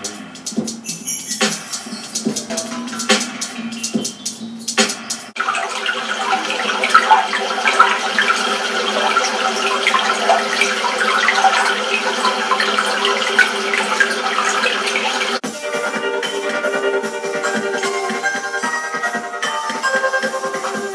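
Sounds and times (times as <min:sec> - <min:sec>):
babbling stream water: 0:05.4 - 0:15.4.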